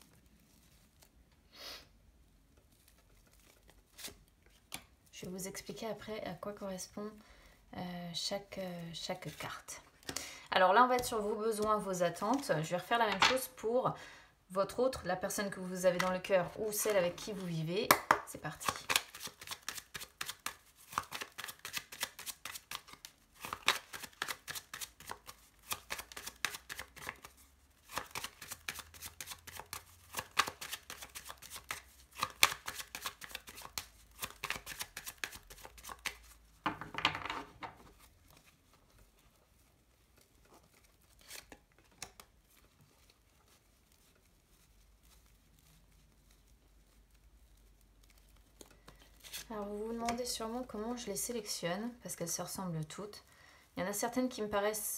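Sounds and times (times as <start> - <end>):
cards shuffling: 2.6 - 4.9, 15.9 - 36.8, 40.1 - 45.3, 47.6 - 50.3.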